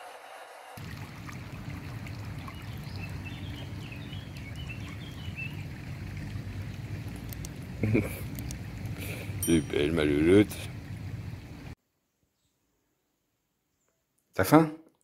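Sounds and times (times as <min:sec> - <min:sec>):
river water over stones: 0:00.8 - 0:11.8.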